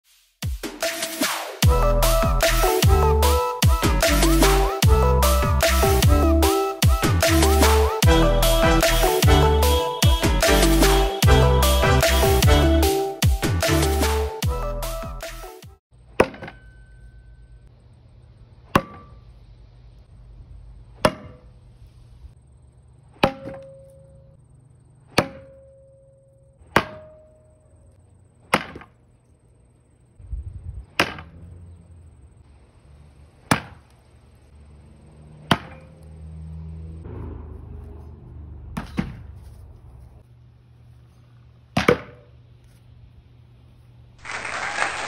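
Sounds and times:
axes thunking into wood: 16.2 - 16.7, 18.7 - 19.2, 21.0 - 21.4, 23.2 - 23.9, 26.7 - 27.2, 35.5 - 35.9
blade ringing in wood: 16.2 - 17.6, 26.8 - 27.6.

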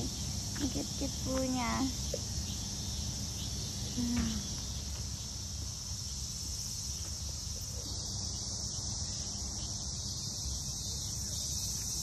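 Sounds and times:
insects chirping: 0.0 - 12.0.

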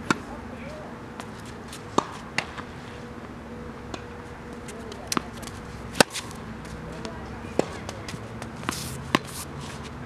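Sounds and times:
tennis ball bouncing: 0.0 - 0.3, 1.2 - 2.7, 3.8 - 9.4
racquet hitting tennis ball: 1.9 - 2.6, 3.9 - 9.4.

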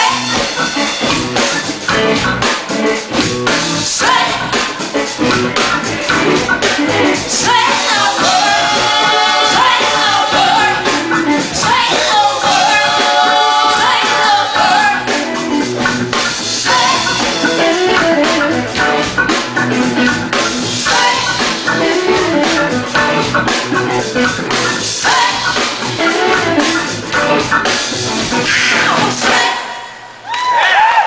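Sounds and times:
band music with guitar and drums: 0.0 - 29.9.

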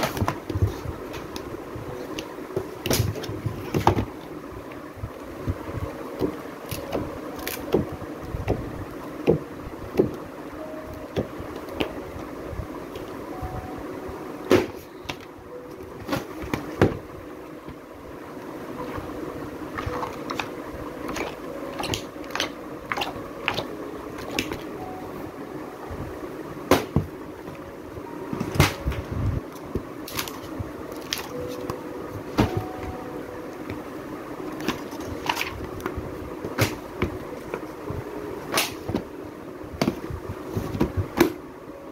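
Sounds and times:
steady low hum: 0.0 - 41.9.

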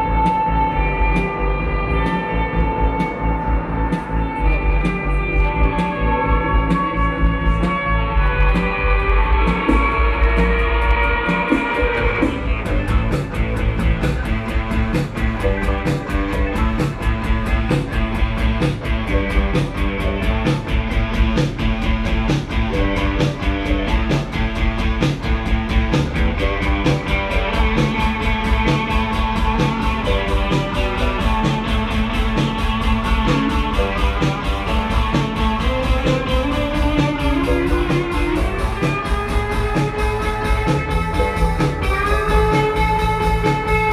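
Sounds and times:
live band playing instrumental: 0.0 - 43.9.

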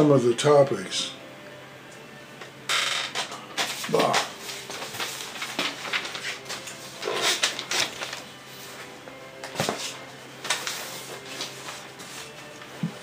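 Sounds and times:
cardboard and paper rustling: 3.6 - 13.0.

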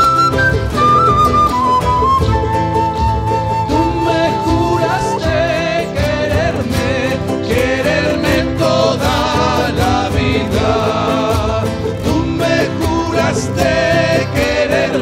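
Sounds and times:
small strummed string instrument: 0.0 - 15.0
strummed acoustic guitars: 0.0 - 15.0
people singing: 3.6 - 15.0
bass drum beating: 5.3 - 14.8.

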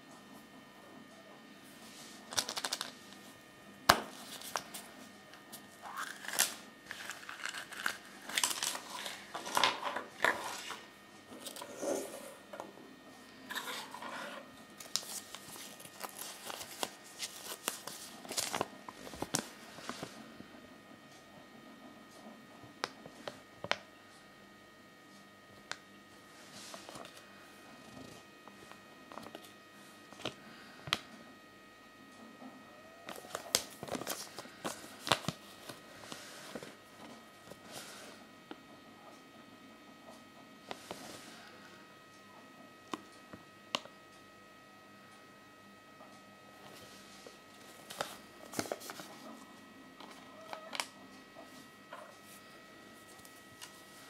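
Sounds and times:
paper rustling and crinkling: 2.0 - 3.2, 4.1 - 11.6, 13.5 - 20.2, 33.1 - 38.0, 46.7 - 49.4.

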